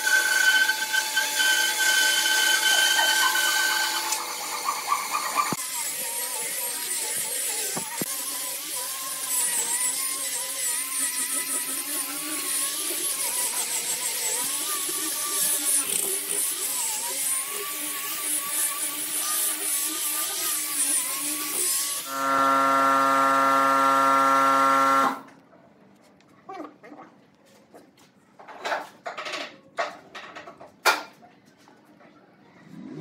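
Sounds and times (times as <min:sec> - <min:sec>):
angle grinder sanding wood: 0:00.0 - 0:25.2.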